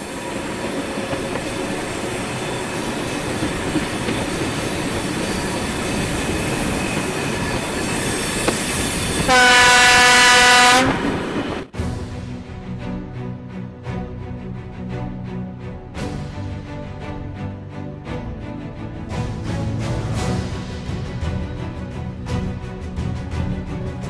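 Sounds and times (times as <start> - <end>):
train rolling along track: 0.0 - 24.0
locomotive horn blast: 9.2 - 11.2.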